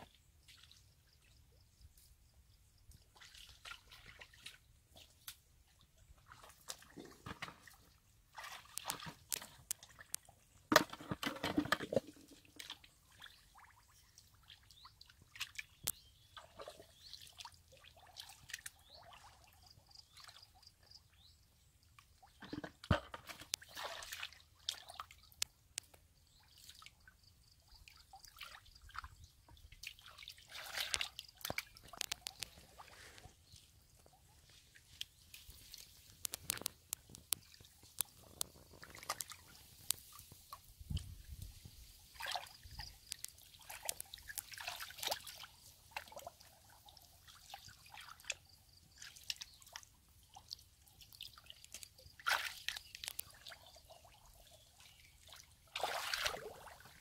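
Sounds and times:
muddy water dripping and splashing: 0.0s - 1.4s, 2.8s - 57.0s
squelching through wet mud: 3.0s - 10.6s, 23.3s - 27.0s, 27.8s - 57.0s.

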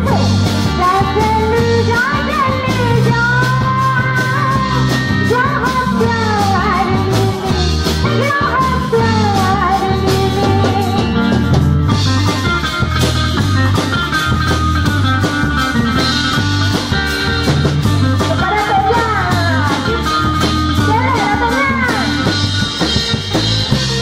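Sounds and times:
woman singing amplified: 0.0s - 11.5s, 18.2s - 22.5s
live band playing: 0.0s - 24.0s.

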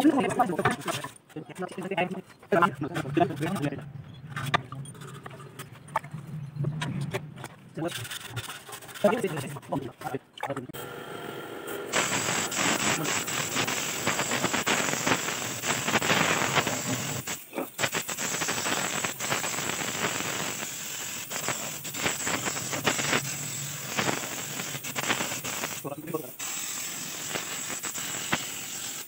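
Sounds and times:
paint spray gun hissing: 10.8s - 29.0s.

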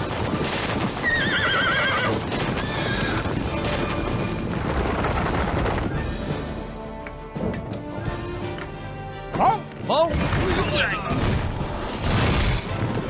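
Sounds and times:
horses' hooves: 0.0s - 6.2s
horse whinnying: 0.9s - 3.5s
film score music: 1.9s - 13.0s.

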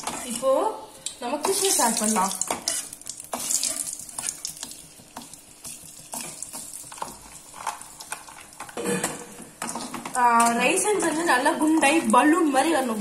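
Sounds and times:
ghee sizzling in a pan: 0.0s - 8.8s, 9.5s - 13.0s
metal spatula scraping pan: 1.4s - 4.4s.

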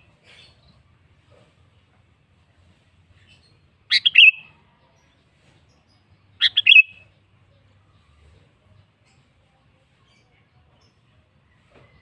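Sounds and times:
bulbul calling: 3.9s - 4.5s, 6.4s - 7.1s.

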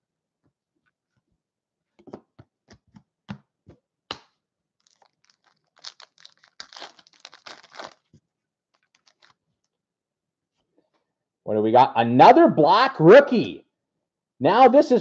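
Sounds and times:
foil wrapper crinkling and tearing: 4.8s - 9.4s.

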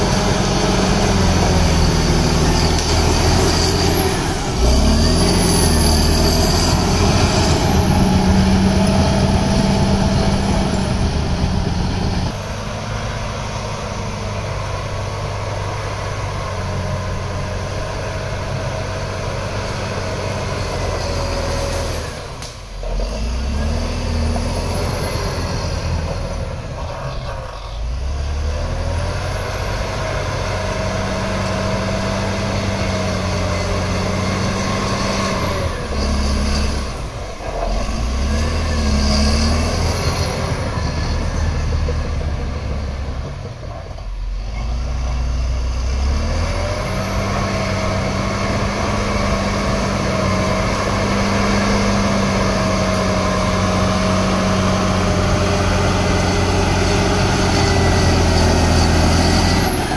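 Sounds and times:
high whine: 0.0s - 14.2s
bulldozer diesel engine: 0.0s - 59.9s.

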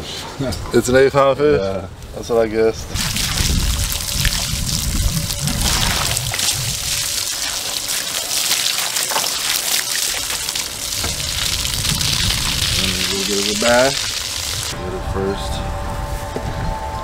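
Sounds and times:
water splashing off fish: 2.9s - 14.7s
hose spraying water: 2.9s - 14.8s.

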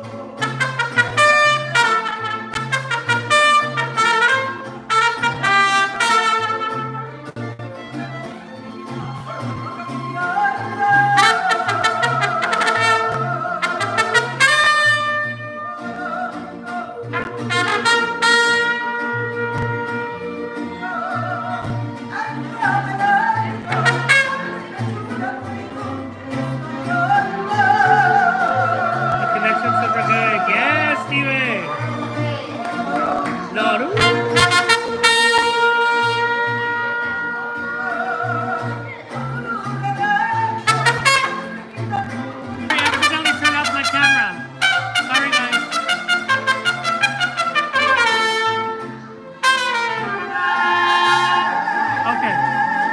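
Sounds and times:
violin: 0.0s - 52.9s
trumpet melody: 0.3s - 7.6s, 10.4s - 16.2s, 17.0s - 21.7s, 22.6s - 31.8s, 33.6s - 39.0s, 40.2s - 52.9s
woman singing: 9.7s - 18.1s, 20.4s - 31.1s, 36.2s - 43.4s, 50.0s - 52.9s.

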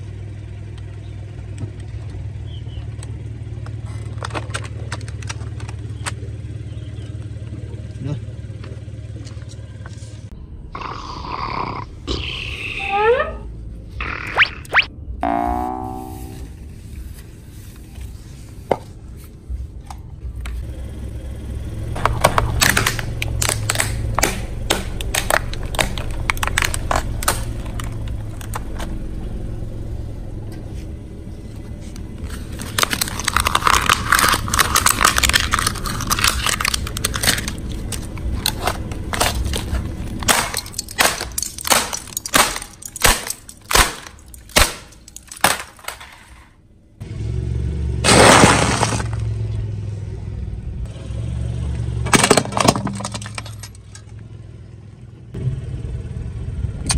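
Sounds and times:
car rumble: 0.0s - 56.9s
plastic cracking and snapping: 22.0s - 28.9s, 32.3s - 46.1s.

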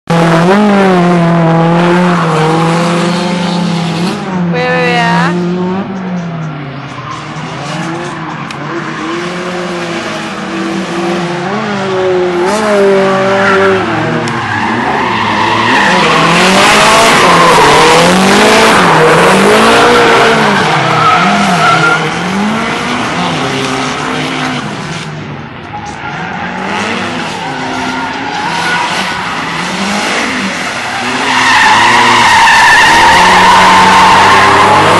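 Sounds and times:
car engine revving: 0.0s - 34.9s
tyres screeching: 25.7s - 34.9s.

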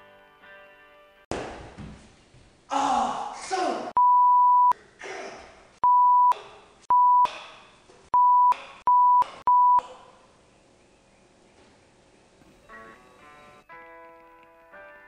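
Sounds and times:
boy yelling angrily: 2.7s - 3.9s
censor bleep: 4.0s - 4.7s, 5.8s - 7.3s, 8.2s - 9.9s.

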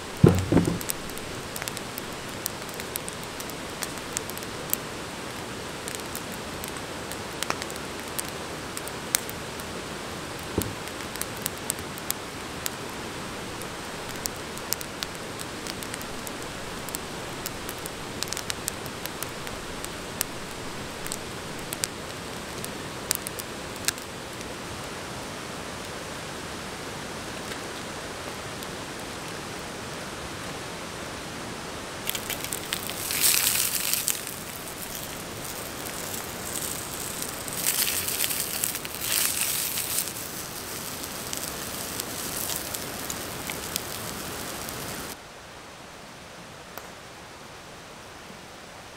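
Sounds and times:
campfire wood popping: 0.0s - 9.4s, 10.3s - 24.0s, 32.0s - 45.2s
river water rushing: 31.8s - 45.2s
plastic bag crinkling: 32.1s - 44.7s.

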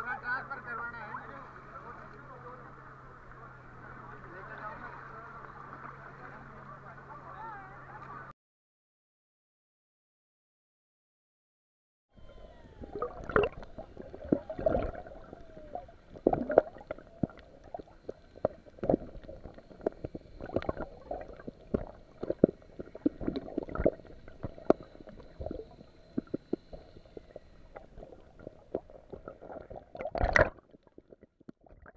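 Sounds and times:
muffled underwater water wash: 0.0s - 8.3s, 12.2s - 31.9s
underwater knocks and clicks: 16.1s - 31.9s.

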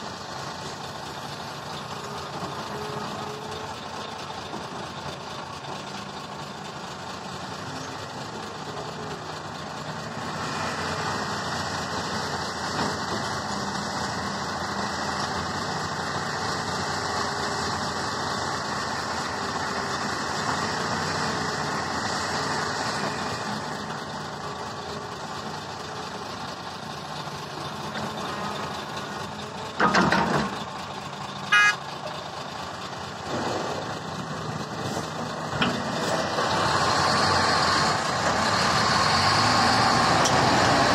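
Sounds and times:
diesel engines running: 0.0s - 40.9s
horn toot: 31.5s - 31.8s.

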